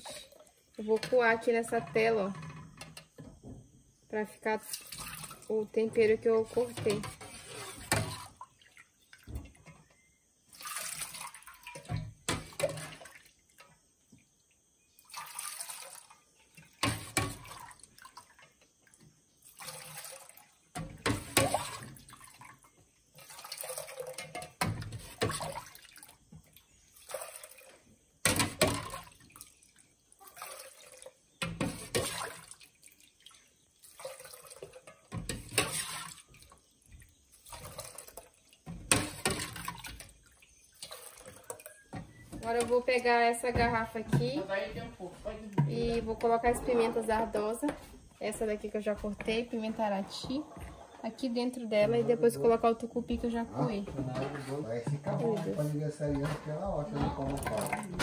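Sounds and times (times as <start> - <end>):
liquid splashing while poured: 4.6 - 5.5, 10.5 - 13.8, 15.0 - 42.7, 57.0 - 58.0
ladle clinking against metal pots: 57.1 - 58.0.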